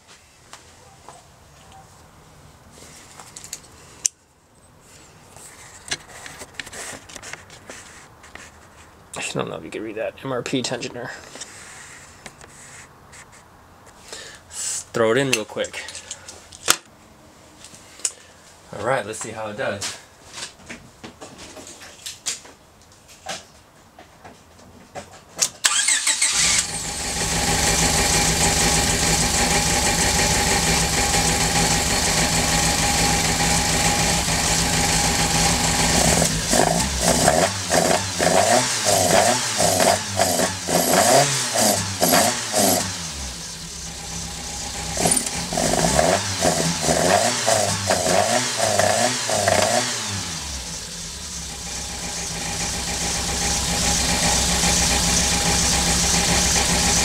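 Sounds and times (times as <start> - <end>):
car engine starting and idling: 25.6 - 57.0
engine revving: 25.6 - 57.0.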